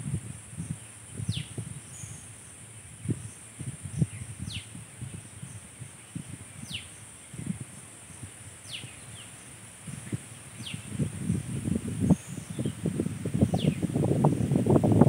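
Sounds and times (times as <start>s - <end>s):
high insect drone: 0.0s - 15.0s.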